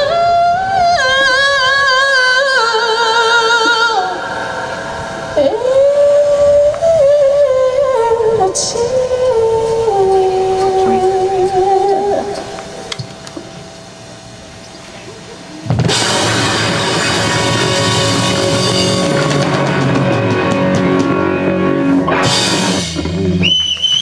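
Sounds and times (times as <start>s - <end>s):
cymbals crashing: 15.6s - 23.4s
live rock band final chord: 15.6s - 23.4s.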